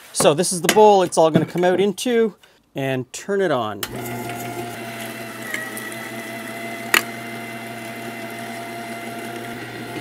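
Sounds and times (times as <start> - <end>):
electric meat grinder motor: 3.8 - 10.0.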